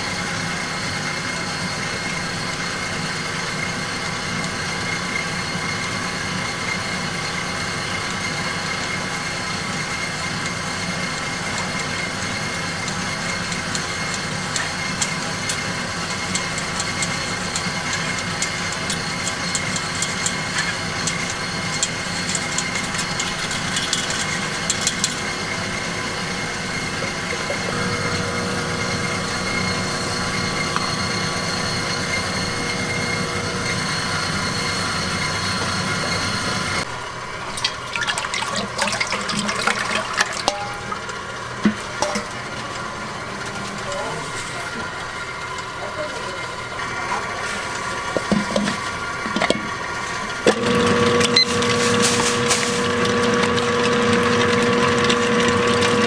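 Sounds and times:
kitchen machine hum: 0.0s - 56.0s
flour rubbed through sieve: 51.4s - 53.2s.

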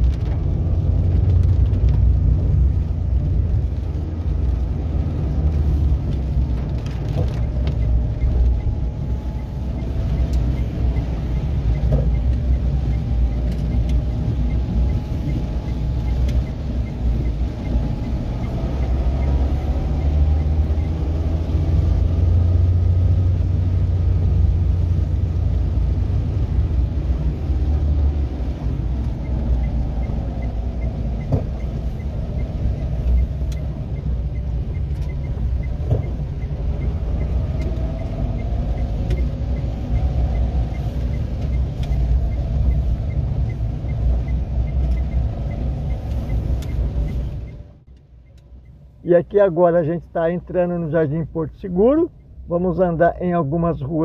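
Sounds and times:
car engine rumble from inside: 0.0s - 54.0s.

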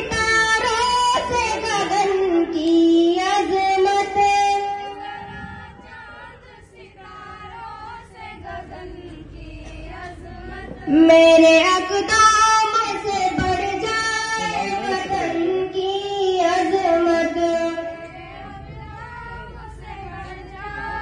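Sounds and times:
girls singing into a microphone: 0.0s - 21.0s
loud voice holding long notes: 13.4s - 18.0s.

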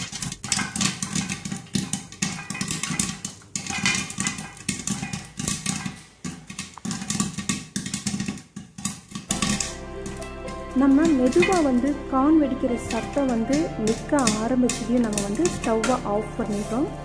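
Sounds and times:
corn kernels popping: 0.0s - 17.0s
background music: 9.3s - 17.0s.

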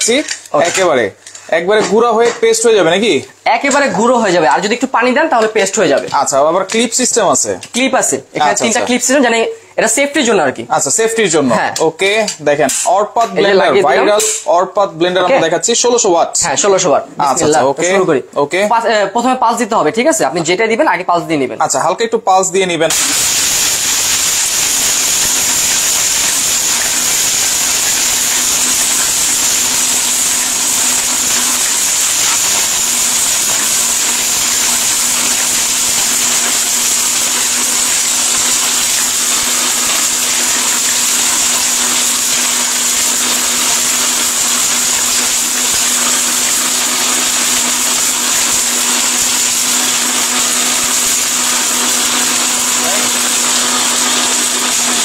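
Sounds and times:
blender grinding: 22.9s - 55.0s.

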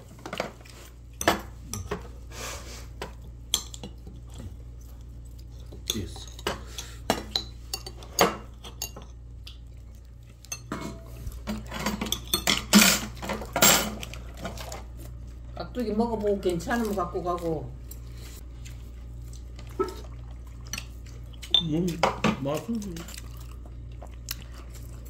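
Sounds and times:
utensils clinking against plates: 5.6s - 9.2s, 10.4s - 14.8s.

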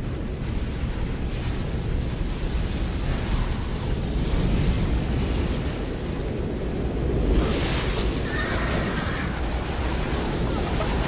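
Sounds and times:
rumble of galloping horses: 0.0s - 11.0s
horse whinnying: 8.2s - 9.4s.

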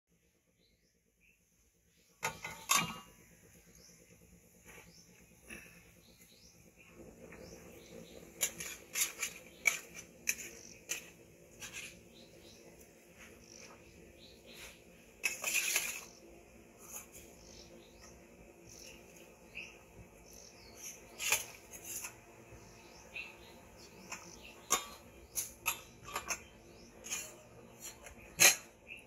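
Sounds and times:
faint bird chirps: 0.4s - 15.0s
utensils and dishes clattering: 2.2s - 3.1s, 8.3s - 12.0s, 15.2s - 16.2s, 23.8s - 28.8s.

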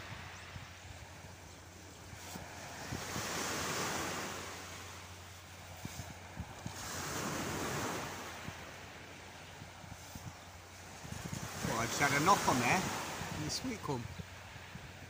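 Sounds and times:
surf washing on beach: 0.0s - 15.0s
wind buffeting microphone: 0.0s - 15.0s.

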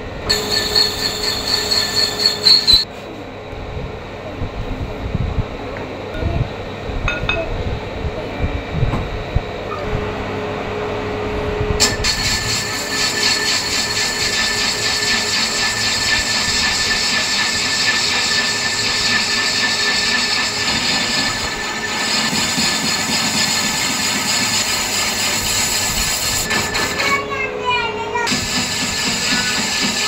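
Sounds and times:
metal lathe running: 0.2s - 2.9s, 11.8s - 27.1s, 28.3s - 30.0s
metal-cutting screech: 0.3s - 2.9s, 11.8s - 27.2s, 28.3s - 30.0s.

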